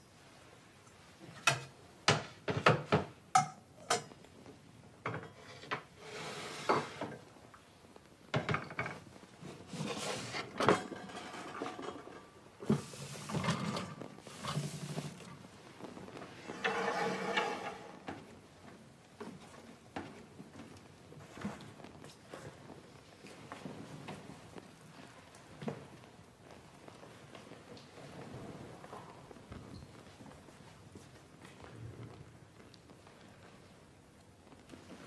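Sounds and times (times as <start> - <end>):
metal vessels knocking and clinking: 1.4 - 4.1, 10.6 - 12.4
cloth rubbing and rustling: 5.9 - 7.4, 9.1 - 10.7, 12.2 - 18.6.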